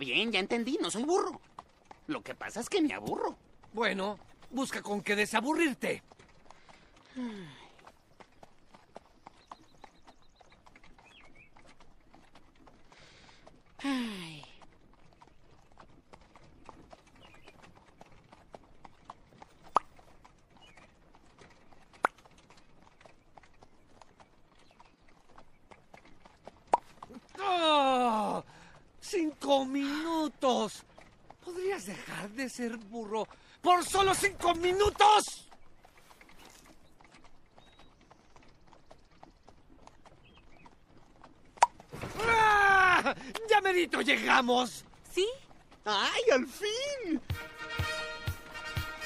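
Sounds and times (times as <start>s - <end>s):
horse hooves clip-clopping: 0.0s - 49.0s
mouth pops: 26.6s - 27.5s, 41.6s - 43.5s.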